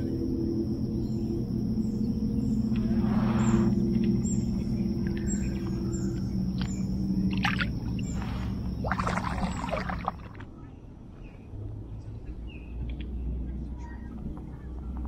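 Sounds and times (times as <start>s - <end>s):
steady low hum: 0.0s - 11.1s
water splashing against kayak: 7.3s - 10.4s.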